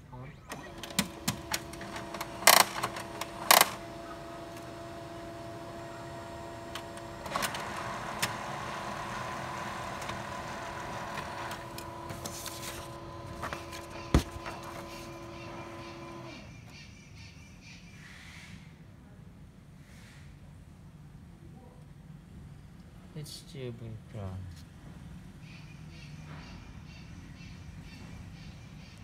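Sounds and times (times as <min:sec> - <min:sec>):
printer motor hum: 0:00.4 - 0:16.5
printer clacks: 0:00.5 - 0:16.4
paper feeding through printer: 0:00.5 - 0:16.5.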